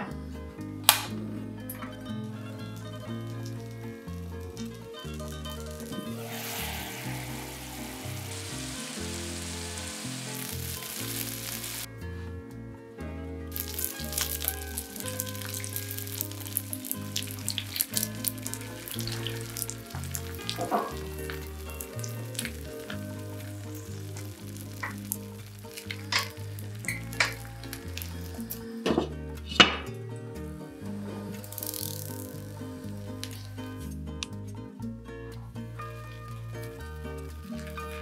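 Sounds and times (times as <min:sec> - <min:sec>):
dumplings sizzling in a pan: 0:02.8 - 0:11.9, 0:13.5 - 0:28.8, 0:31.0 - 0:33.6, 0:35.8 - 0:38.0.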